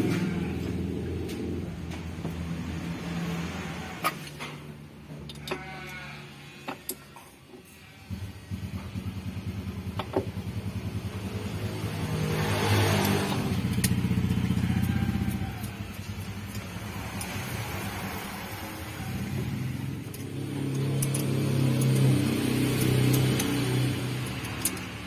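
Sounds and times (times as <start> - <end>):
vehicle engine pulsing: 8.1 - 25.0.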